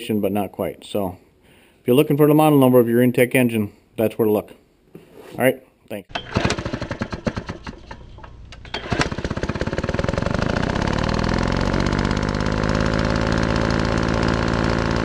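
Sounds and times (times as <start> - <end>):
small engine popping and running: 6.1 - 15.0.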